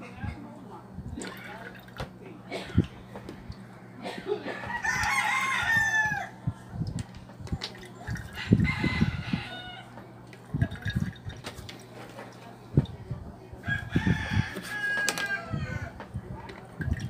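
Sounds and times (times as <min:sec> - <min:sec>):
rooster crowing: 0:04.5 - 0:06.4, 0:08.4 - 0:10.0, 0:13.6 - 0:16.0.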